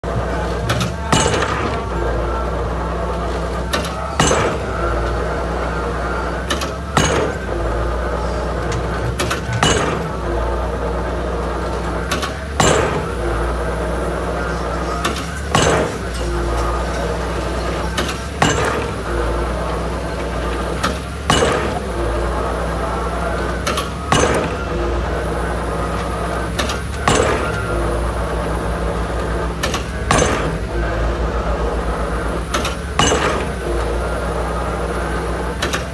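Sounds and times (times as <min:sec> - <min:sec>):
diesel engine running: 0:00.0 - 0:35.9
metal clanks: 0:00.1 - 0:05.3, 0:06.4 - 0:07.7, 0:08.4 - 0:10.4, 0:11.4 - 0:13.5, 0:14.2 - 0:35.9
drop hammer banging on pile: 0:00.2 - 0:01.9, 0:03.6 - 0:05.2, 0:06.5 - 0:07.6, 0:08.7 - 0:10.2, 0:12.1 - 0:13.3, 0:14.9 - 0:22.5, 0:23.4 - 0:24.8, 0:25.9 - 0:28.1, 0:29.6 - 0:31.0, 0:32.4 - 0:34.0.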